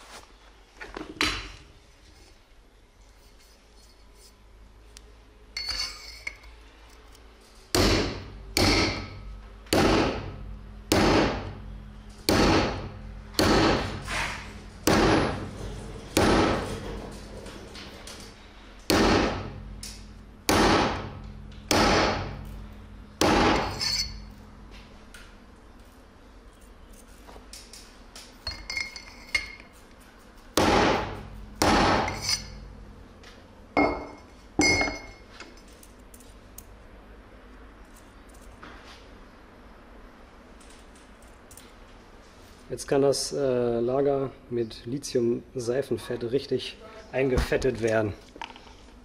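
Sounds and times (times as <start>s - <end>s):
hammer striking metal pipe: 7.7s - 10.3s, 23.2s - 24.3s, 30.6s - 32.6s.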